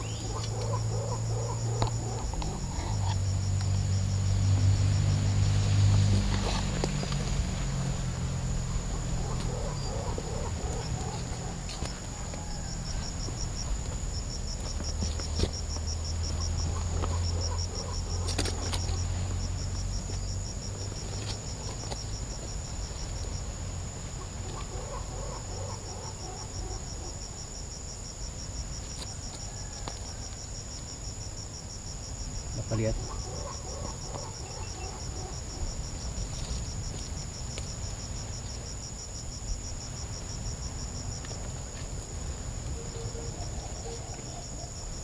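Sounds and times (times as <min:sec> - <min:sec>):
insects shrilling drone: 0:00.0 - 0:45.0
rapid pulsed insect chirping: 0:00.0 - 0:45.0
rustling through dry undergrowth: 0:03.9 - 0:25.3, 0:35.9 - 0:38.5.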